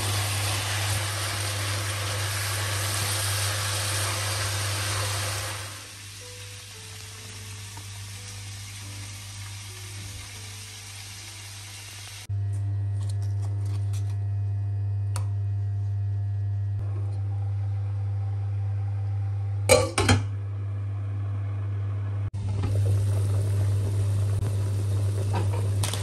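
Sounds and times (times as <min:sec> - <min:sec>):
water boiling: 0:00.0 - 0:12.3, 0:22.4 - 0:26.0.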